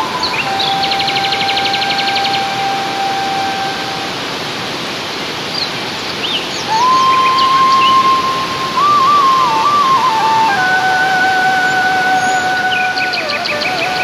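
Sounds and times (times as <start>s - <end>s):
waterfall rushing: 0.0s - 14.0s
steady held tone: 6.7s - 14.0s.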